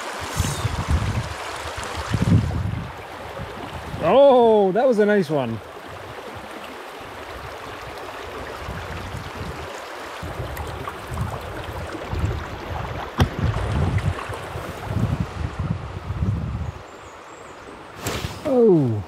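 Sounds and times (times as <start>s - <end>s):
stream rushing over rocks: 0.0s - 15.8s
wind buffeting the microphone: 0.2s - 4.2s, 7.2s - 16.9s.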